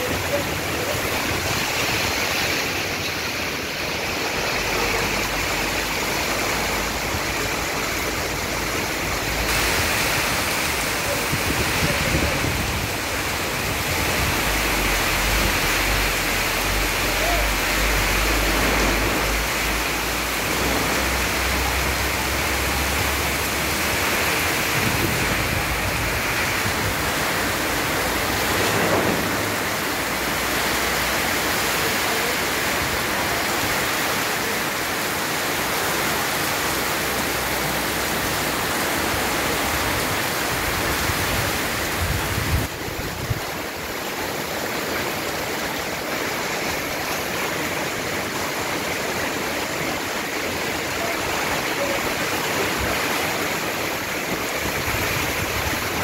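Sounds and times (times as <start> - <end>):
wind rumbling: 0.0 - 31.5, 52.6 - 56.0
heavy rain pouring: 0.0 - 56.0.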